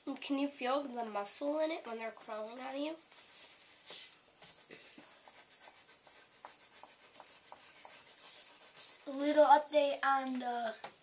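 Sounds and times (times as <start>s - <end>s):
pencils scratching on paper: 0.3s - 11.0s.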